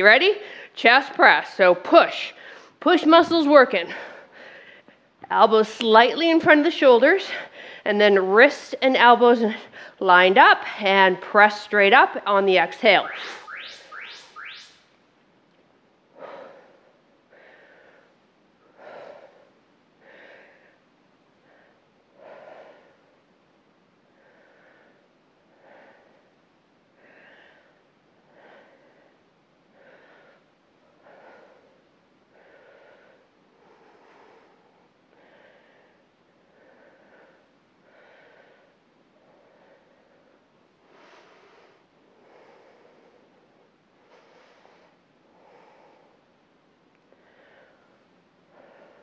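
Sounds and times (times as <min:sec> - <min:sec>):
woman breathing rhythmically: 0:00.0 - 0:00.9, 0:02.2 - 0:02.8, 0:03.7 - 0:05.3, 0:07.0 - 0:08.0, 0:09.2 - 0:10.9, 0:15.8 - 0:49.0.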